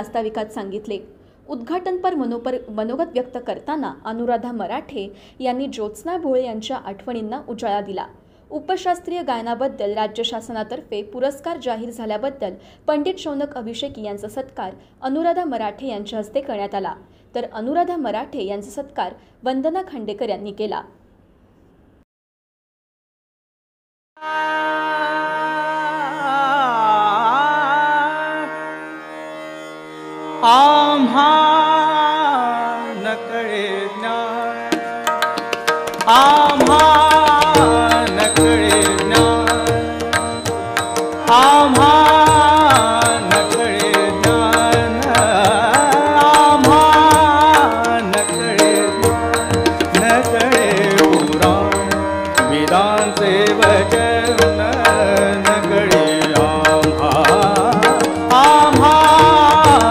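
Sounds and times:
man singing: 24.2 - 28.8, 30.4 - 35.2, 36.0 - 59.9
held accompanying notes: 34.5 - 59.9
tabla strokes: 34.7 - 59.9.

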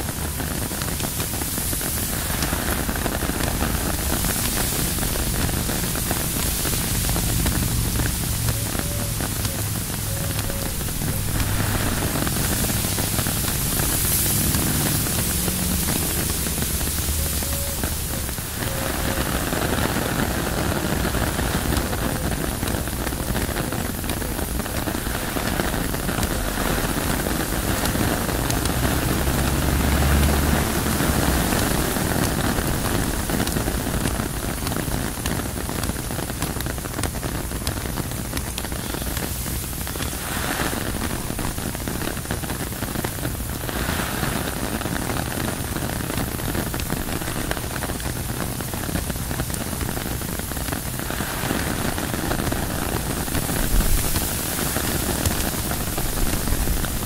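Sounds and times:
rain on tent fabric: 0.0 - 57.0
wind: 0.0 - 57.0
deep low rumble: 2.2 - 19.4.

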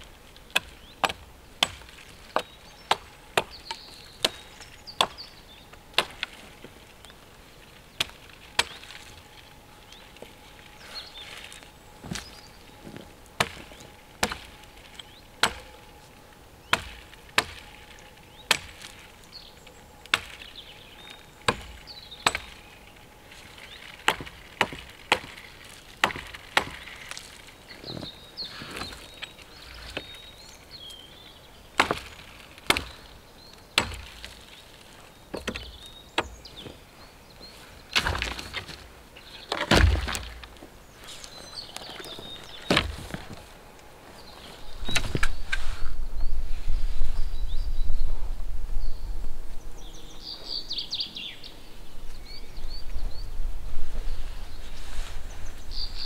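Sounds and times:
hatchet chopping branches: 0.0 - 9.2, 13.4 - 16.0, 16.6 - 19.2, 20.0 - 31.0, 31.7 - 36.8, 37.9 - 40.7, 41.6 - 43.4
crash of wood: 37.9 - 38.8, 39.5 - 40.6.

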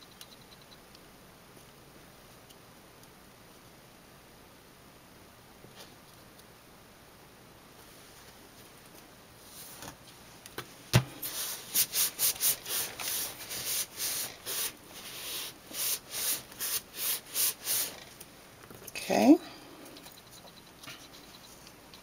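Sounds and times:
hand rubbing card stock: 11.2 - 18.0.

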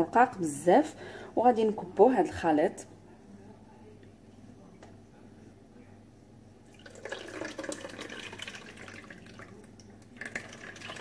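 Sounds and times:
liquid pouring into a strainer: 6.7 - 11.0
liquid splashing into a bowl: 6.7 - 11.0.

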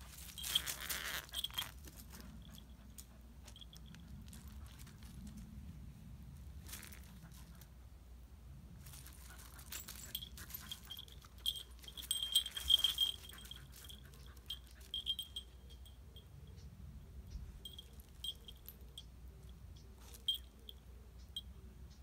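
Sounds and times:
dog collar jingling: 0.0 - 5.0, 8.9 - 16.3, 17.6 - 20.8.

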